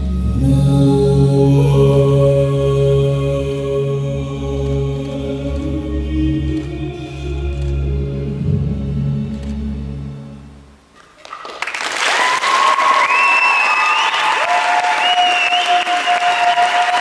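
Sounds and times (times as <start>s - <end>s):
audience applause and cheering: 11.1s - 17.0s.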